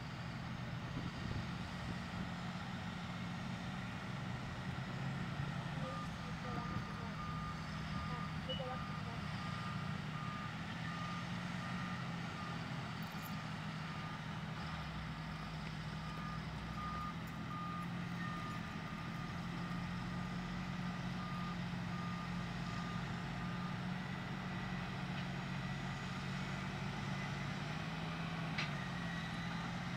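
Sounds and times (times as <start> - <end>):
diesel engine running under load: 0.0 - 29.9
backup alarm beeping: 5.8 - 11.2.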